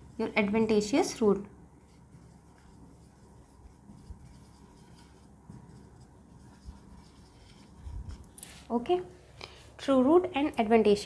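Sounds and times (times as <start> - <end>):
marker scratching on whiteboard: 1.8 - 8.6.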